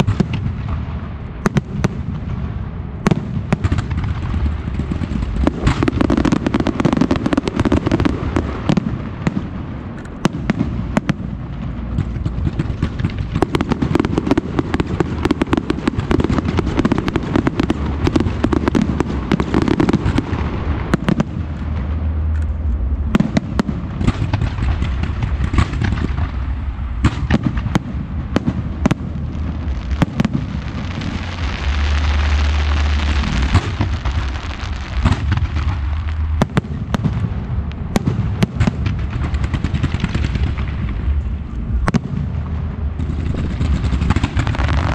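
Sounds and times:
fireworks bursting: 0.0 - 44.9
hissing crackle: 11.0 - 44.9.

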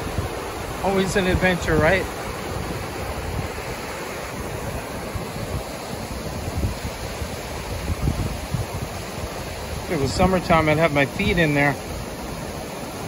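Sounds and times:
creek rushing over rocks: 0.0 - 13.0
wind buffeting microphone: 0.0 - 13.0.

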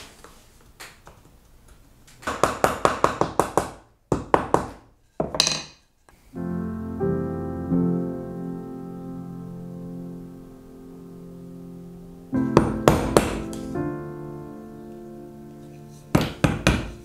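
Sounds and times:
soft piano music: 6.2 - 17.0
wood-on-wood knocks: 16.1 - 17.0.

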